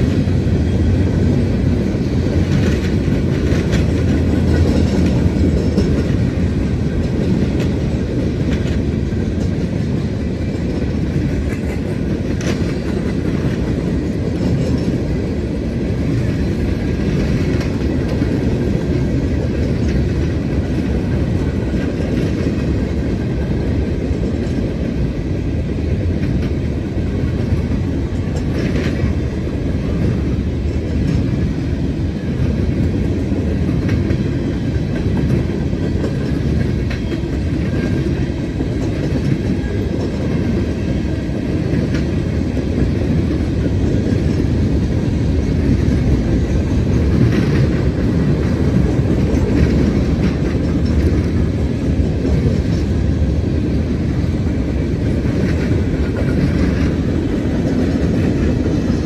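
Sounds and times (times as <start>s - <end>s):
train wheels rumbling on rail: 0.0s - 59.0s.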